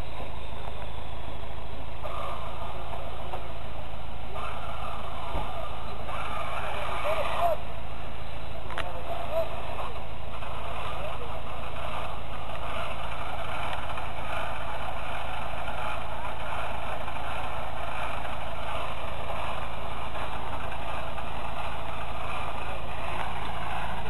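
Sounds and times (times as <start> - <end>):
engine running under load: 0.0 - 24.0.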